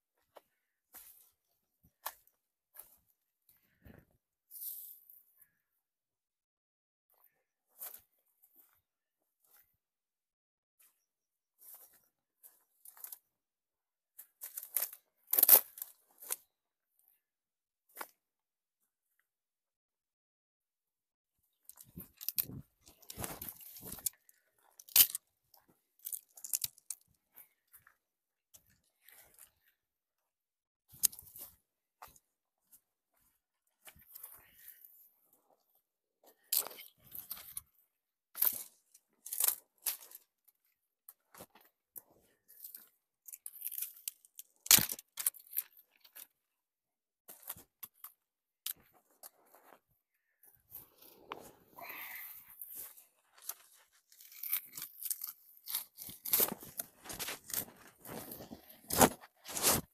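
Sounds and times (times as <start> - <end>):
footsteps crunching through dry grass: 0.2 - 5.2, 11.6 - 13.2, 21.7 - 26.6, 48.8 - 54.8, 56.0 - 59.9
dry branches rustling and crackling: 21.7 - 25.2, 52.6 - 59.9.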